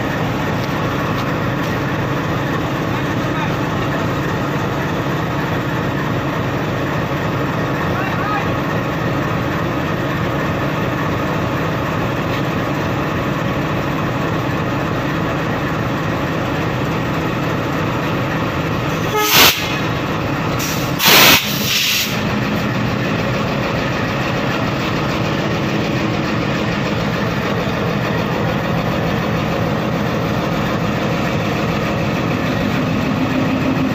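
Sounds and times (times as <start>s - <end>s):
diesel locomotive idling: 0.0s - 33.9s
compressed air hiss: 19.2s - 19.8s, 20.6s - 22.2s.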